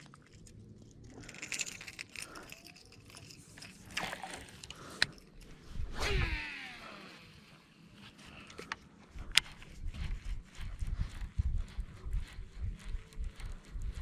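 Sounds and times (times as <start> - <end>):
small clicks and rattles: 0.0 - 5.5.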